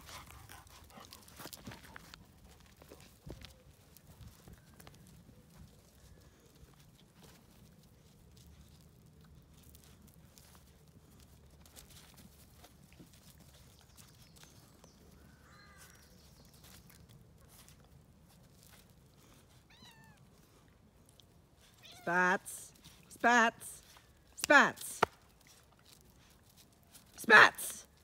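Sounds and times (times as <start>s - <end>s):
animals scuffling on gravel: 0.0s - 28.0s.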